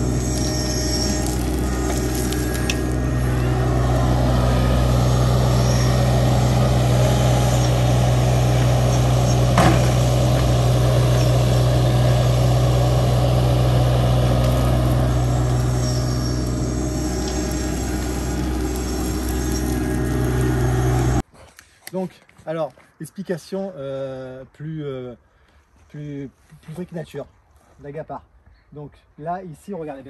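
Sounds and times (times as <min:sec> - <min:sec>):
construction machine engine running: 0:00.0 - 0:21.2.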